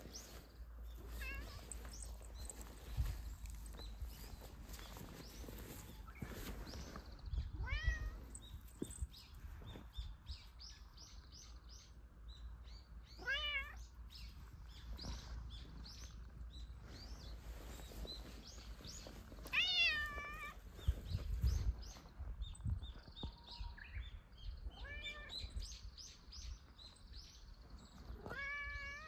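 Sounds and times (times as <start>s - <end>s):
small birds chirping: 0.0s - 29.0s
cat meowing: 1.2s - 1.6s, 7.6s - 8.2s, 13.2s - 13.8s, 19.5s - 20.6s, 24.7s - 25.4s, 28.2s - 29.0s.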